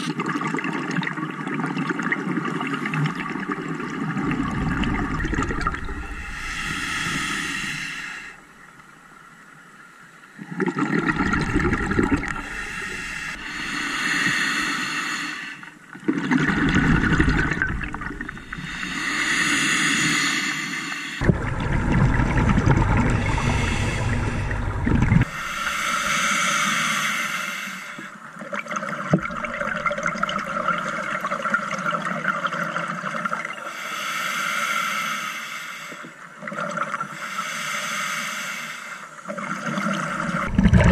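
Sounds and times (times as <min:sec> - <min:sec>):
bubbling exhalations: 0:04.1 - 0:08.4, 0:10.6 - 0:13.8, 0:21.2 - 0:26.1, 0:40.4 - 0:40.9
regulator inhalation hiss: 0:05.9 - 0:08.4, 0:12.3 - 0:15.6, 0:18.4 - 0:21.2, 0:23.2 - 0:28.2, 0:33.7 - 0:36.1, 0:37.2 - 0:39.1.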